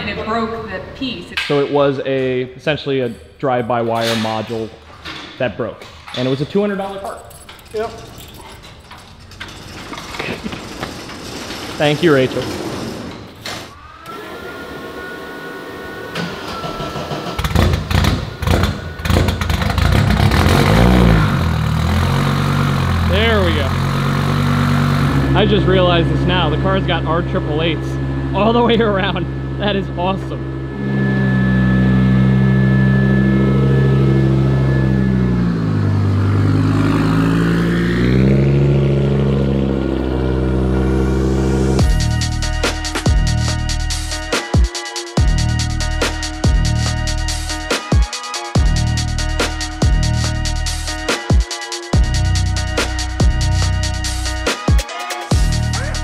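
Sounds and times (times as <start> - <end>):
starter whine: 6.1 - 44.5, 48.6 - 54.7
rally car engine starting: 7.4 - 44.2.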